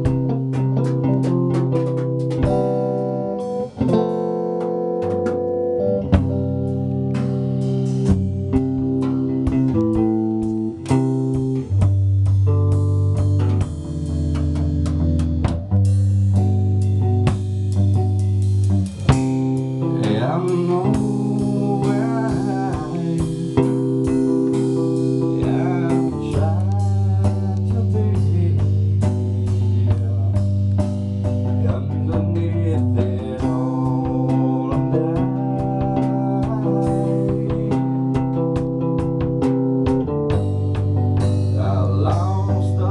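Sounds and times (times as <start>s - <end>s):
live band playing: 0.0s - 42.9s
man singing into a microphone: 19.8s - 24.6s, 25.2s - 30.6s, 31.5s - 38.3s, 41.5s - 42.9s.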